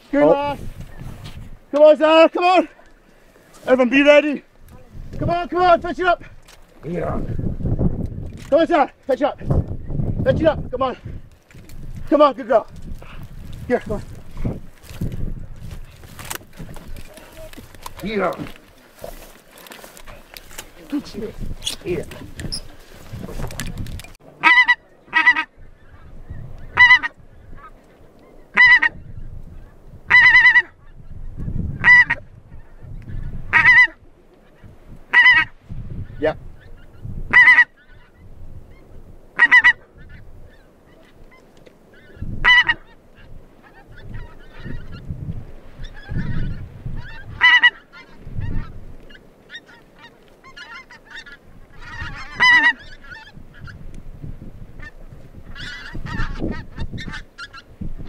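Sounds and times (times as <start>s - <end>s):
wind buffeting microphone: 0.0s - 1.8s, 4.0s - 58.0s
geese honking: 24.2s - 29.1s, 30.1s - 31.0s, 31.8s - 45.1s, 45.8s - 53.9s, 54.8s - 58.0s.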